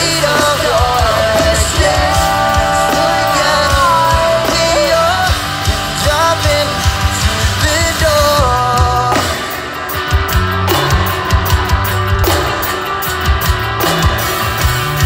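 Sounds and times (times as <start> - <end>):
person singing: 0.0 - 9.7
drums: 0.0 - 15.0
electric bass: 0.0 - 15.0
electric guitar: 0.0 - 15.0.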